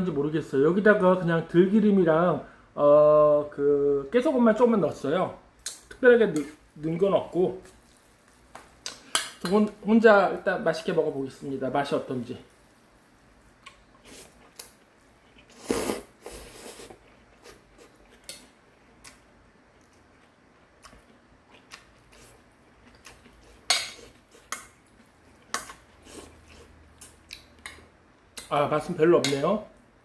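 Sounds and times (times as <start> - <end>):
person eating noodles: 13.6 - 27.8.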